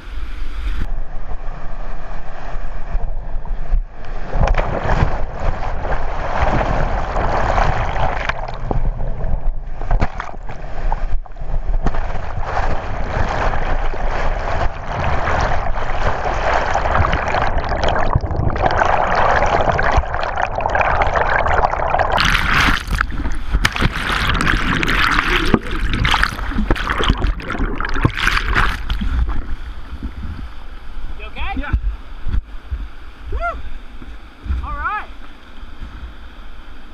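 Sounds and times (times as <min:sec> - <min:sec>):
knocks and splashes: 0:04.2 - 0:30.4
rushing gurgling whitewater: 0:12.0 - 0:30.0.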